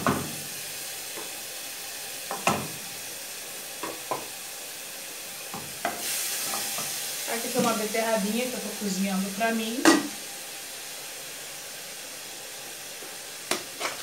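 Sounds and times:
onion sizzling in a saucepan: 0:00.0 - 0:14.0
wooden spoon scraping a pan: 0:13.5 - 0:14.0.

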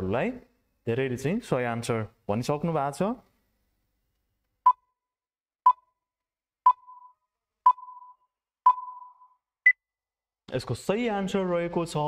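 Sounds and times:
short countdown beeps: 0:05.7 - 0:06.0, 0:06.6 - 0:09.8
higher time-up beep: 0:06.7 - 0:09.4.

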